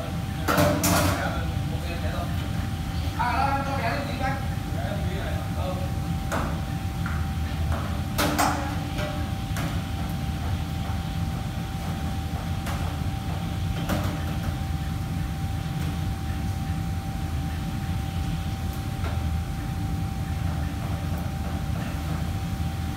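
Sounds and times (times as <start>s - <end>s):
fans and kitchen machinery hum: 0.0s - 22.9s
thin constant whine: 0.0s - 22.9s.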